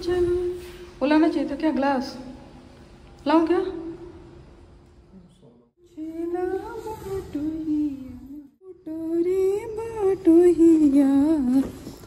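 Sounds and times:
woman singing: 0.0s - 1.8s, 5.8s - 12.0s.

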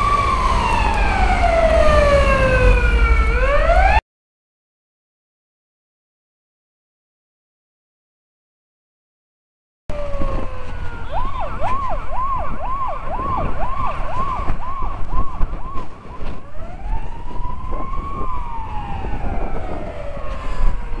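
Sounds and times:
fire engine siren: 0.0s - 4.0s, 9.9s - 21.0s
wind rumble on microphone: 9.9s - 21.0s.

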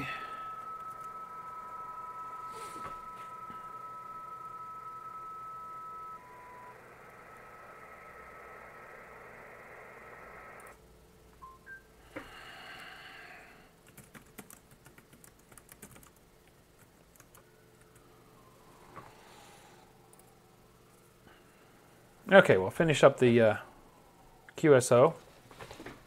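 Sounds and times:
radio receiver hiss: 0.0s - 10.8s
computer keyboard typing: 13.8s - 16.2s, 16.8s - 18.0s.

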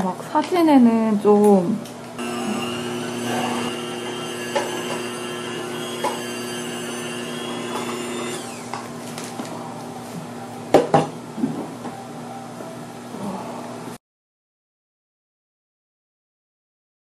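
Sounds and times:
electric motor humming: 2.2s - 9.0s.

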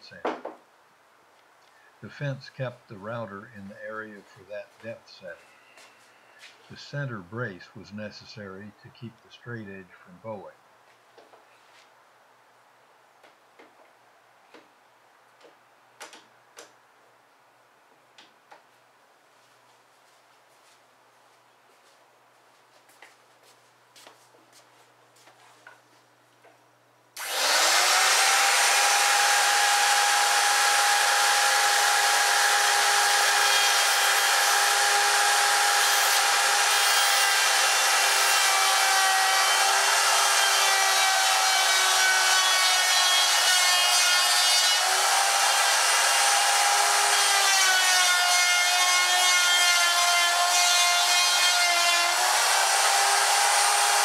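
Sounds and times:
electric router whining: 27.2s - 50.6s, 51.4s - 54.0s
router cutting into wood: 27.2s - 54.0s.

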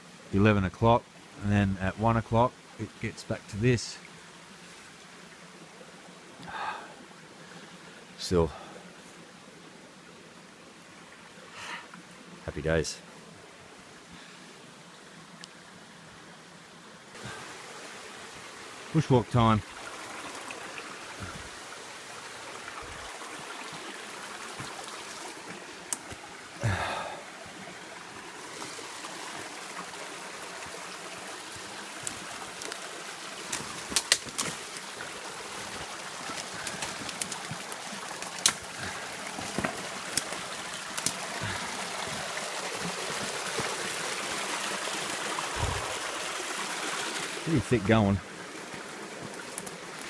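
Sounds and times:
creek trickling and babbling: 0.0s - 50.0s
footsteps on sticks and leaves: 33.4s - 42.2s.

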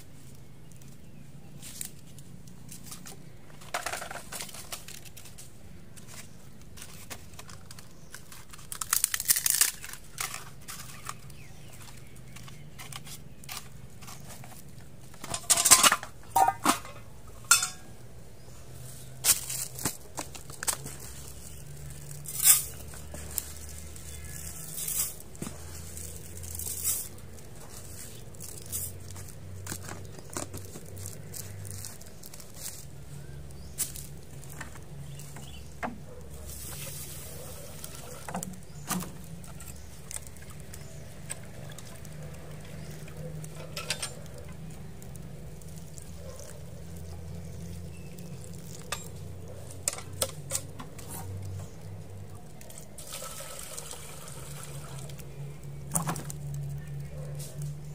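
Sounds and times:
containers clicking and knocking: 9.8s - 17.9s
rice pouring into metal tin: 53.0s - 55.0s.

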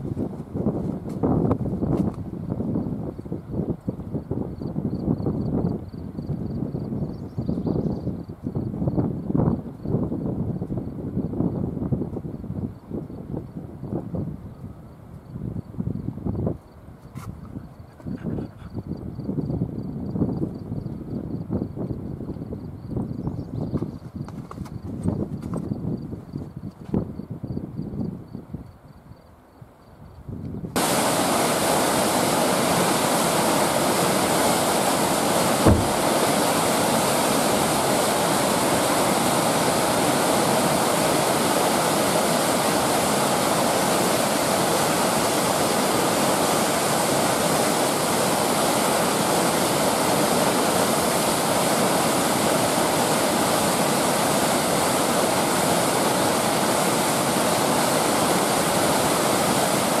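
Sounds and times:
river rapids rushing: 30.8s - 60.0s
low thump: 35.6s - 36.0s.

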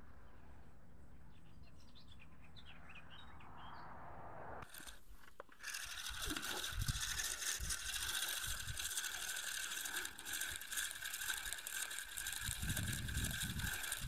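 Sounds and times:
fishing reel clicking rapidly: 4.6s - 14.0s.

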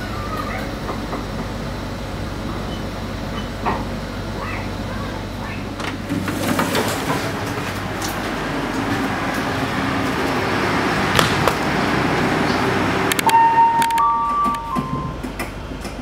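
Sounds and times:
train rumble and hiss: 0.0s - 16.0s
sharp knocks: 11.1s - 11.6s
steady high tone: 13.1s - 15.2s.

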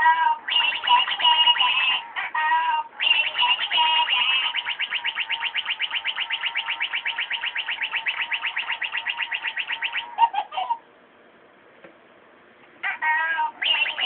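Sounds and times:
lower electronic blips: 0.5s - 2.0s, 3.0s - 10.2s
robotic toy high beeps: 0.5s - 2.0s, 3.0s - 10.5s, 13.6s - 14.0s
steady electronic tone: 3.0s - 10.2s.

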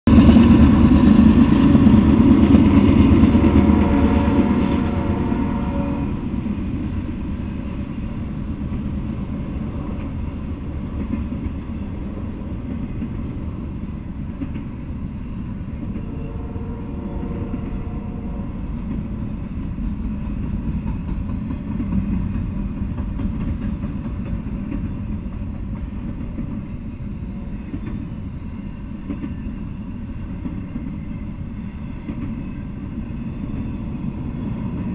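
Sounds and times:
diesel locomotive: 0.0s - 34.9s
train cars rumbling on rails: 0.0s - 34.9s
brief tone: 16.0s - 18.3s, 30.0s - 31.2s.

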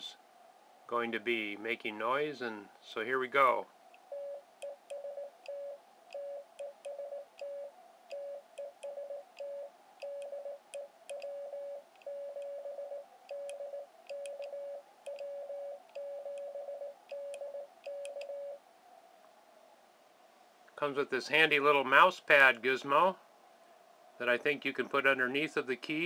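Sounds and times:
morse code beeps: 4.1s - 18.6s.

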